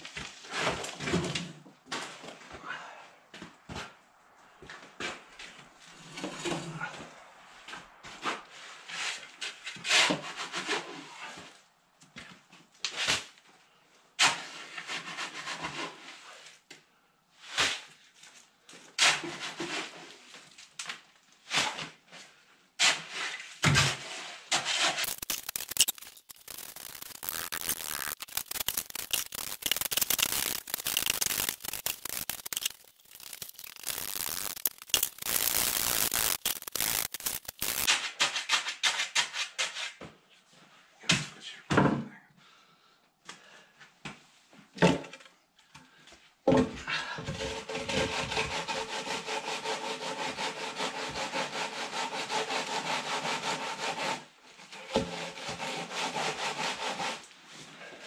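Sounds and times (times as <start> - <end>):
shovel scraping wet concrete: 22.8 - 39.9.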